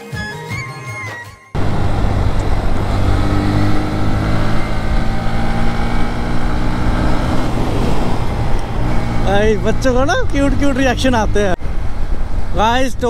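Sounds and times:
motorcycle engine running: 1.6 - 13.0
wind on microphone: 1.6 - 13.0.

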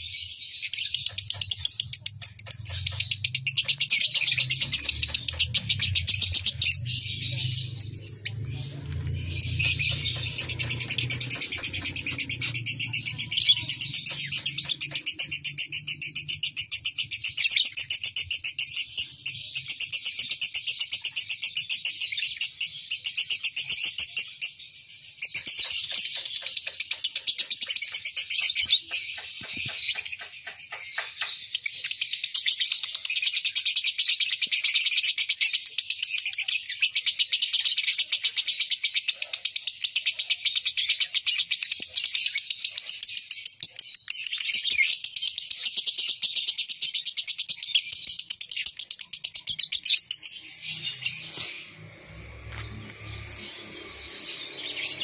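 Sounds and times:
lovebirds chattering: 0.0 - 19.8, 35.4 - 55.0.

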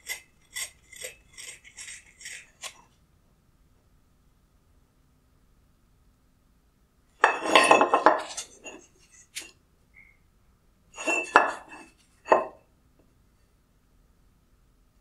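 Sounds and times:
metal parts clattering on wood: 7.2 - 8.7, 11.0 - 12.5.

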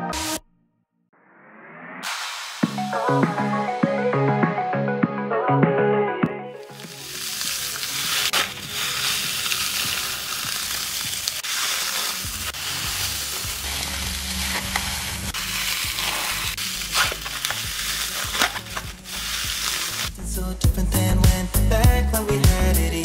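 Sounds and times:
background music bass: 0.0 - 0.5, 2.0 - 23.0
foam bead balloon crackling: 6.6 - 20.4.

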